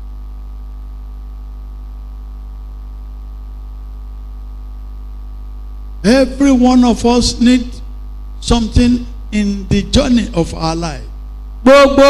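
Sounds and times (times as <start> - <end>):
faint buzz: 0.0 - 12.0
low electrical mains hum: 0.0 - 12.0.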